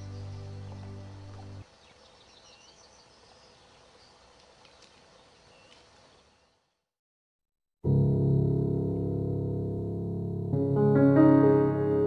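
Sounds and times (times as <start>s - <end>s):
music: 0.0s - 1.6s, 7.8s - 12.0s
bird chirps: 0.0s - 6.6s
insect hum: 0.0s - 6.8s.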